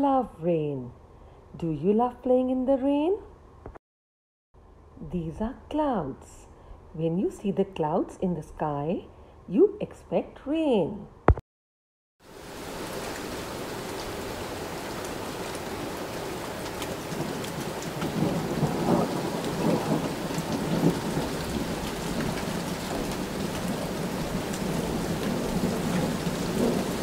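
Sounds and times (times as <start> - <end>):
rain falling: 12.2 - 27.0
thunder rumbling: 16.6 - 27.0.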